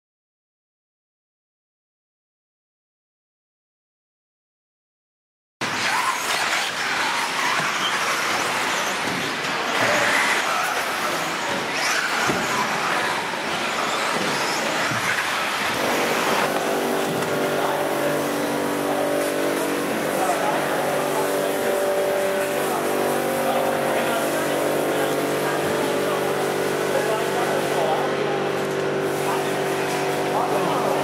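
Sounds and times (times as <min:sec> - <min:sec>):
toy car motors whining: 0:05.6 - 0:17.9
droning hum: 0:12.6 - 0:31.0.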